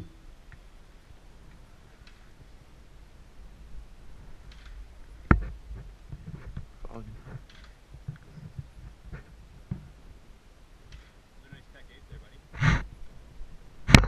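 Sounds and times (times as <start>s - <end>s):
faint clicks and rustles: 0.4s - 14.0s.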